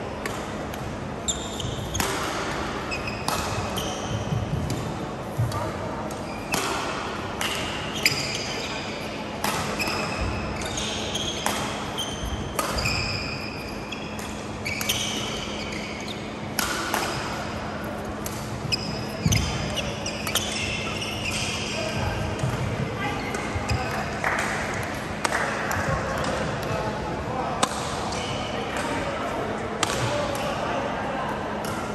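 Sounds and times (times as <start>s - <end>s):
racket hitting shuttlecock: 0.2s - 0.9s, 1.5s - 8.4s, 9.4s - 21.7s, 29.8s - 30.6s
shoes squeaking on court: 1.2s - 4.5s, 7.9s - 9.1s, 9.8s - 17.5s, 18.1s - 21.9s.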